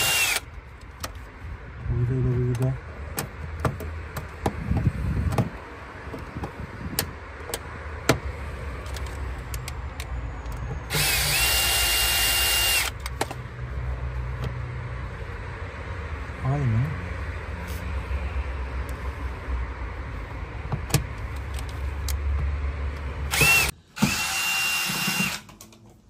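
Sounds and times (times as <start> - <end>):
cordless drill whining: 0.0 - 0.4, 10.9 - 13.0, 23.3 - 25.4.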